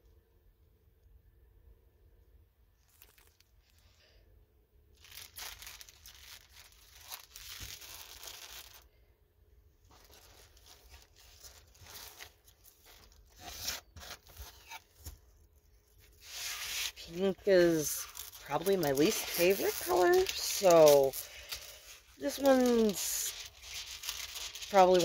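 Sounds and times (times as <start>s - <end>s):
plastic packaging crinkling: 2.8s - 4.0s, 4.9s - 9.0s, 9.8s - 15.2s, 15.8s - 25.0s.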